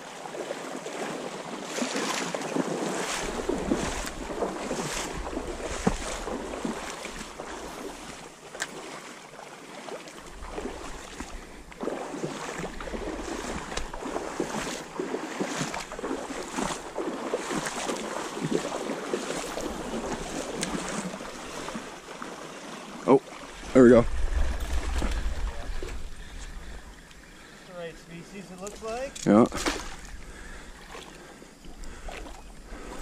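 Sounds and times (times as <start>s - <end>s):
water splashing around wading legs: 0.0s - 33.0s
wind on microphone: 23.5s - 27.1s.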